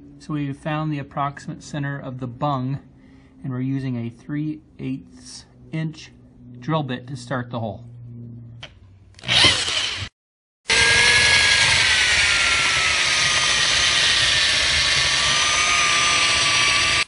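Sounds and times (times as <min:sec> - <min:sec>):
power drill whining: 0:09.2 - 0:17.0.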